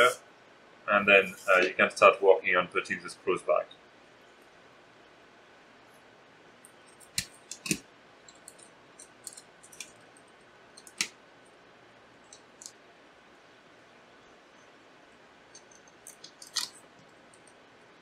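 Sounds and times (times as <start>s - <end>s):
screwdriver clicking on metal: 15.6s - 16.8s.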